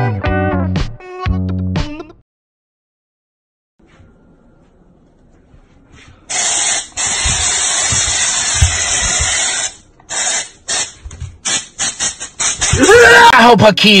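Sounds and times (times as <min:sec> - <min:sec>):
aerosol spray can hissing: 0:06.3 - 0:12.9.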